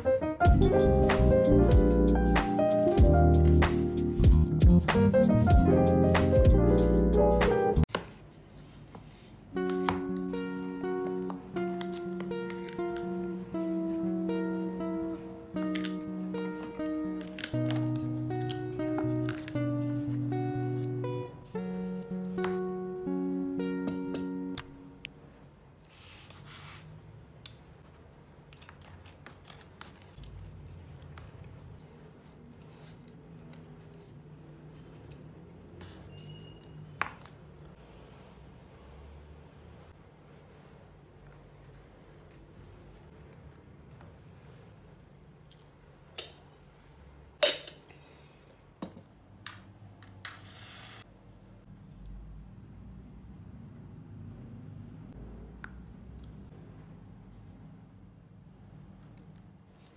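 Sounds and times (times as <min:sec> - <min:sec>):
soft rustle: 0:25.8 - 0:27.0
short scraping hiss: 0:50.3 - 0:51.1.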